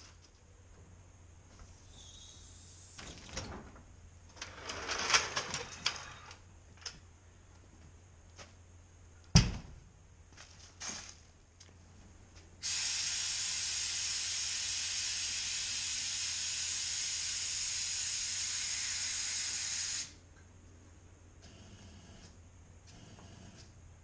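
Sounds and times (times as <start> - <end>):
pressurised gas hissing: 12.6 - 20.2.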